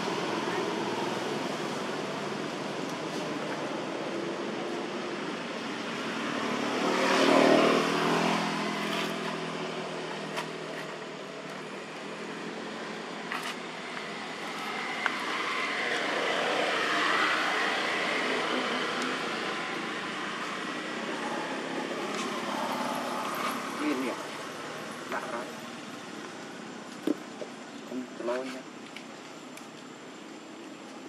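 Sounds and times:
vehicle passing: 0.0s - 26.0s.

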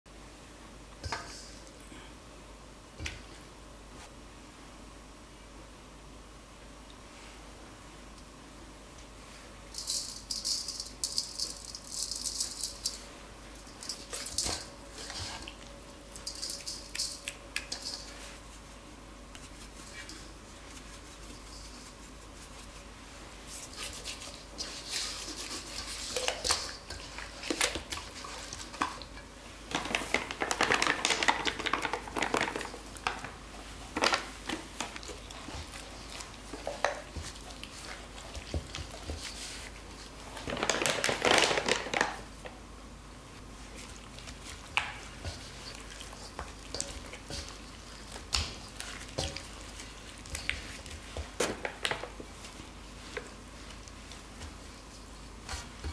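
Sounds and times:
meat rustling in powder: 43.4s - 55.8s.

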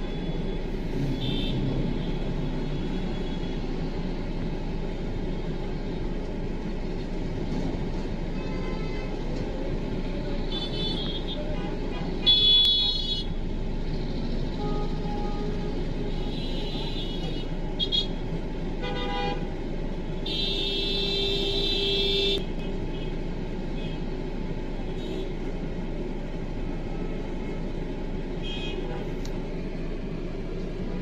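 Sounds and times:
traffic engines rumbling: 0.0s - 31.0s
vehicle horns tooting: 1.0s - 2.2s.

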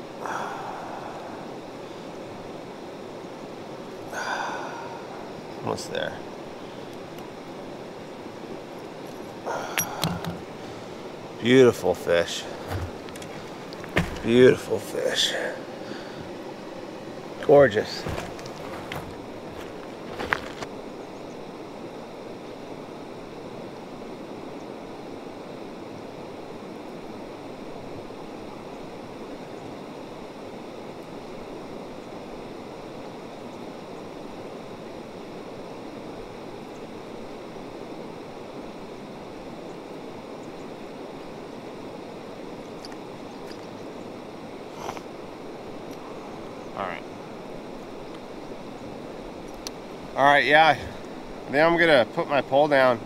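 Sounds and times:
creek water running: 9.5s - 16.4s, 17.3s - 20.7s.

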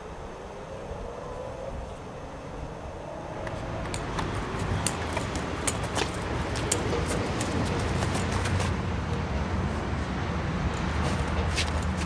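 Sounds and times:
traffic rumble: 0.0s - 12.0s
sharp clicks and ticks: 3.4s - 8.8s.

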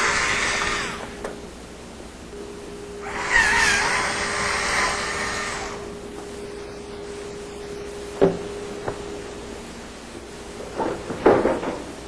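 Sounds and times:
metal plate scraping and squealing: 3.0s - 5.8s.

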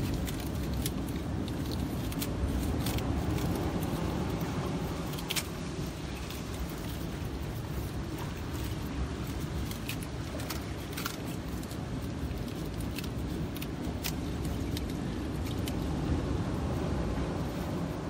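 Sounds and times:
scissors snipping spines: 0.0s - 15.9s
wind and surf rumble: 0.0s - 18.0s.

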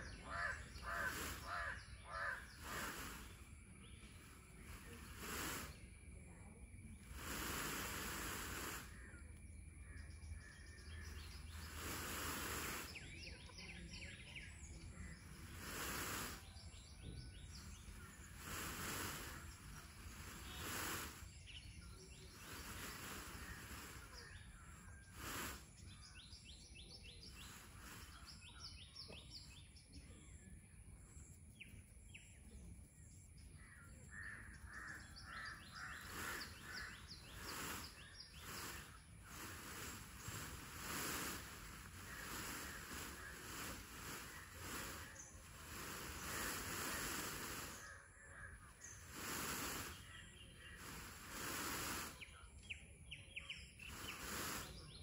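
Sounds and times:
small birds chirping: 0.0s - 55.0s
broad rustling noise: 0.5s - 1.6s, 2.6s - 5.7s, 7.1s - 8.9s, 11.6s - 13.0s, 15.3s - 16.4s, 17.6s - 21.4s, 22.3s - 24.4s, 25.1s - 25.7s, 36.0s - 47.9s, 49.0s - 50.1s, 50.8s - 52.2s, 53.9s - 54.8s.

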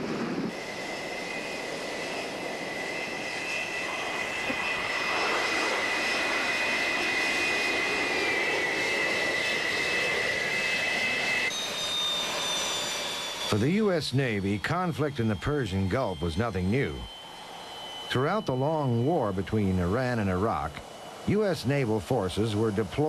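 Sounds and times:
faint higher whine: 0.0s - 23.0s
jet engines whining and roaring: 0.0s - 23.0s.

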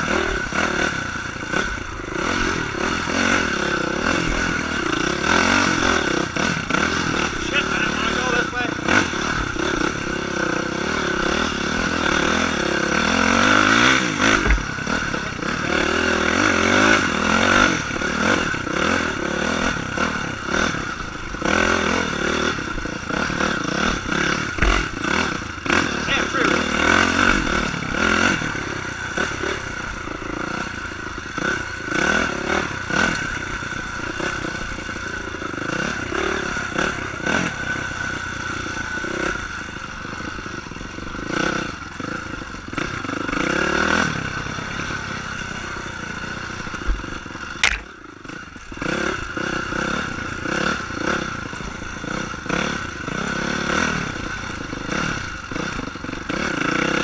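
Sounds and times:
dirt bike engine revving: 0.0s - 57.0s
sharp click: 47.6s - 47.9s.

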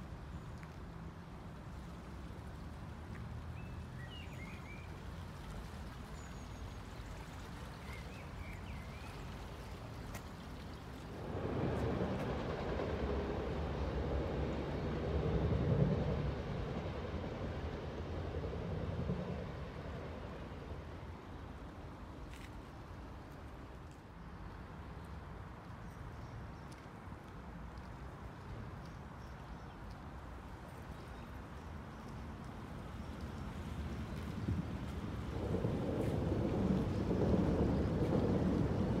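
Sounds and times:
train rumbling over viaduct: 11.1s - 21.5s, 33.7s - 39.0s.

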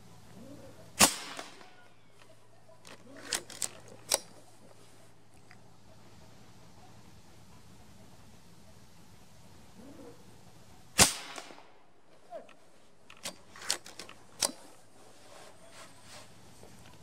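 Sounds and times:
air rifle shot: 1.0s - 1.8s, 11.0s - 11.8s
rifle cycling clicks: 1.0s - 4.4s, 11.0s - 11.7s, 13.1s - 14.8s.

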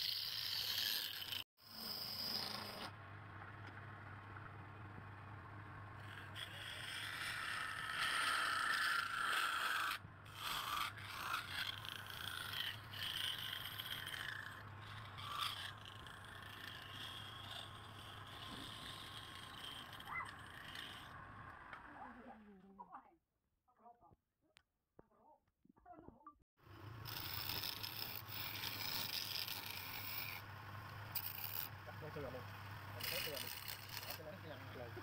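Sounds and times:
turning tool scraping wood: 0.0s - 3.0s, 6.0s - 21.2s, 27.0s - 35.0s
wood lathe motor hum: 6.0s - 21.3s, 27.0s - 35.0s.

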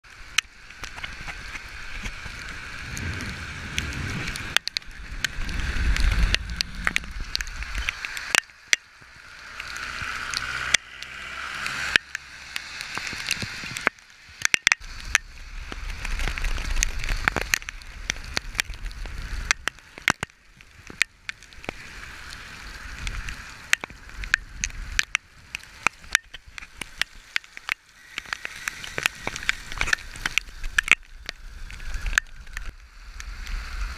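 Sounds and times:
raindrops ticking on camera: 0.0s - 33.9s
wind rumbling on microphone: 0.0s - 33.9s
tyres hissing on wet road: 0.1s - 33.9s.

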